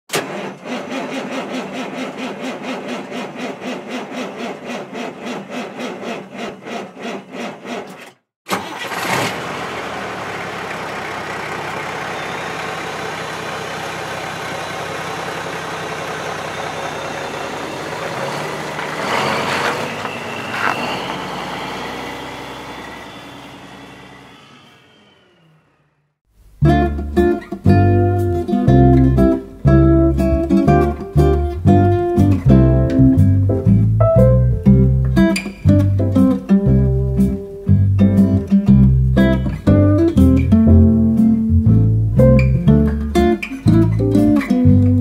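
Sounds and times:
engine cranking: 0:00.1 - 0:25.9
engine running steadily: 0:08.6 - 0:19.2, 0:20.0 - 0:25.8.

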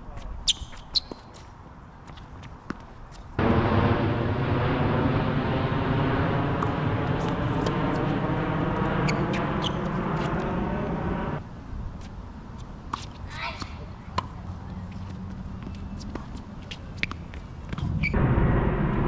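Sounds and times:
steady engine drone: 0:03.4 - 0:11.4, 0:17.8 - 0:19.0.

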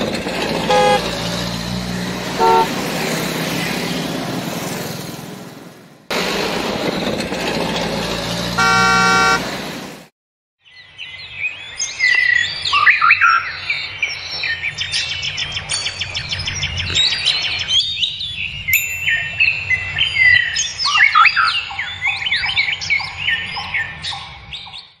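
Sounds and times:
road traffic noise: 0:00.0 - 0:10.1
car horn honking: 0:00.6 - 0:01.1, 0:02.4 - 0:02.8, 0:08.6 - 0:09.6.

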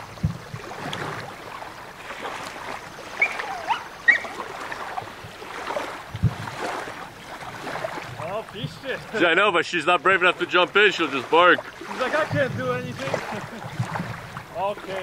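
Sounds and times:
lake water lapping: 0:00.0 - 0:15.0
wind: 0:00.0 - 0:15.0
small dog yelping and whining: 0:03.2 - 0:04.4.

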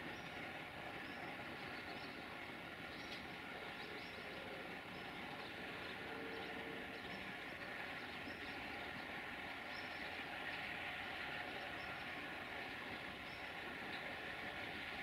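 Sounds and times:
diesel locomotive engine hum: 0:00.0 - 0:15.0
birds chirping: 0:01.0 - 0:10.2.

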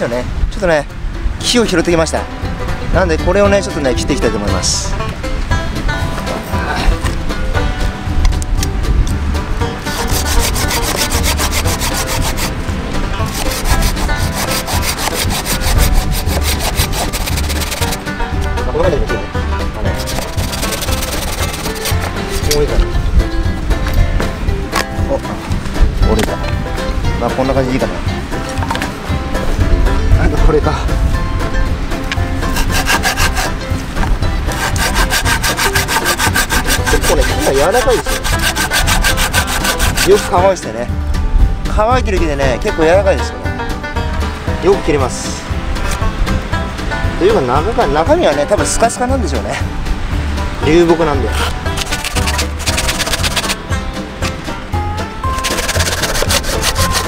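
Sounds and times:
hand saw cutting wood: 0:09.9 - 0:12.6, 0:13.2 - 0:18.0, 0:19.9 - 0:22.6, 0:32.4 - 0:33.6, 0:34.5 - 0:40.4, 0:51.2 - 0:53.6, 0:55.3 - 0:57.0.

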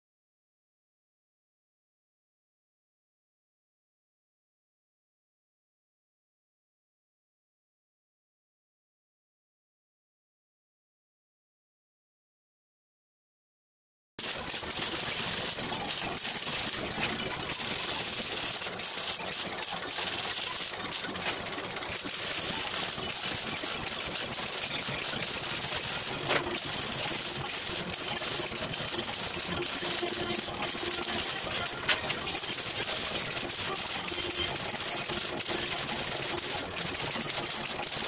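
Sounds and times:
welder arc crackling and hissing: 0:14.2 - 0:38.0.

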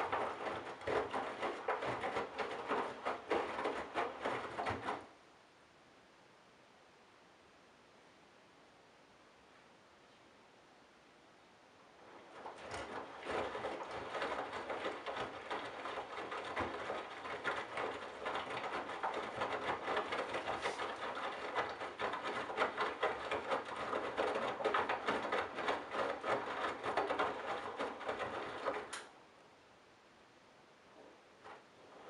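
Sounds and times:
washing machine drum tumbling: 0:00.0 - 0:05.1, 0:12.3 - 0:28.9
water sloshing: 0:00.0 - 0:05.1, 0:12.0 - 0:28.9.

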